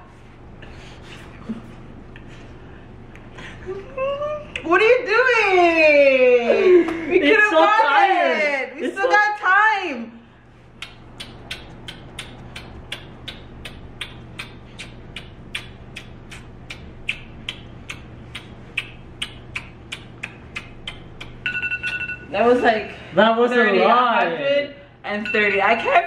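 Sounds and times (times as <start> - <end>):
rapid wet kisses: 10.7 - 22.0
steady electronic beep: 21.4 - 22.3, 25.2 - 26.0.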